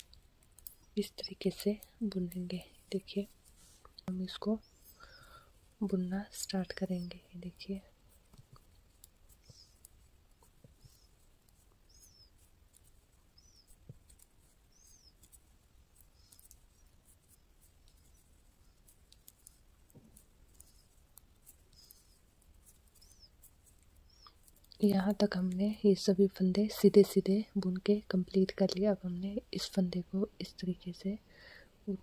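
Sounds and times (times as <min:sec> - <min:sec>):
knitting needles clicking: 0:00.0 - 0:29.7.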